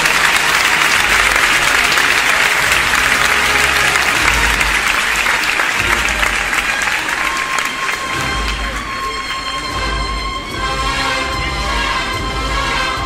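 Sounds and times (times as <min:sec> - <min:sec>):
crowd applauding loudly: 0:00.0 - 0:13.0.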